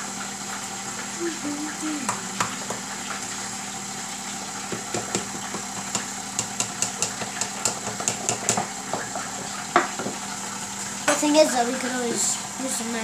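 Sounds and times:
stand mixer motor running: 0.0 - 13.0.

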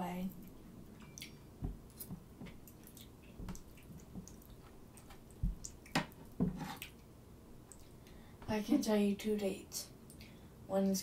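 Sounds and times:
chewing and mouth smacks: 0.4 - 7.1.

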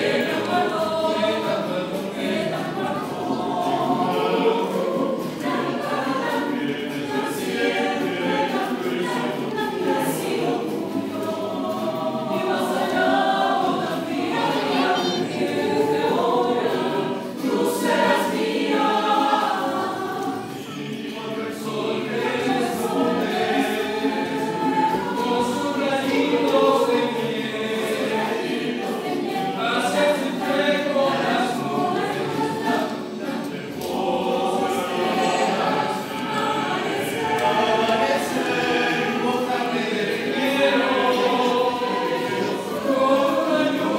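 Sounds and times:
mixed choir singing a cappella: 0.0 - 43.9.

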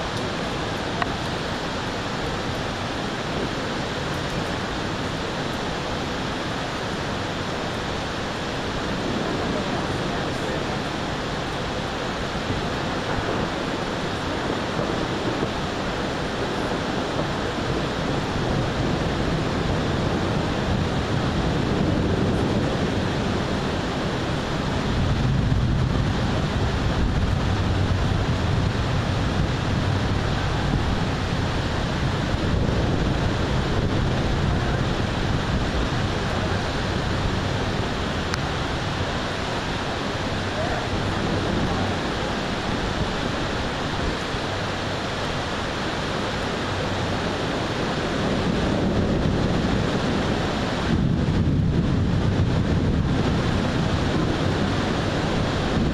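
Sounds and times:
wind and rain rushing: 0.0 - 55.9
wind buffeting microphone: 0.0 - 55.9.

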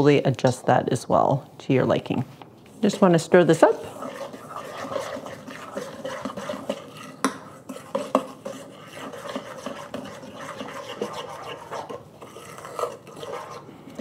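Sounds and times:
metal utensil scraping a bowl: 2.8 - 14.0.

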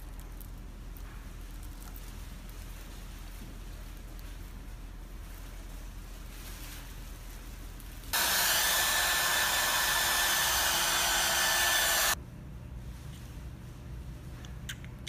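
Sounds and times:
hair dryer blowing: 8.2 - 12.2.

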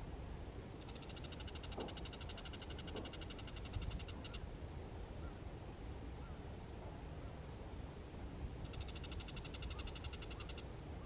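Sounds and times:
bird chattering call: 0.8 - 4.4, 8.6 - 10.7.

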